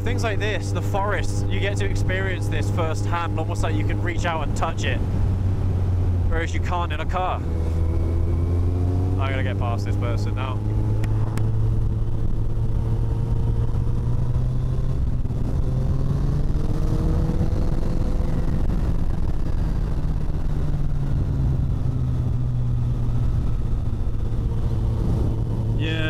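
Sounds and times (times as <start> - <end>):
motorcycle engine running: 0.0 - 26.0
wind noise on microphone: 10.8 - 25.9.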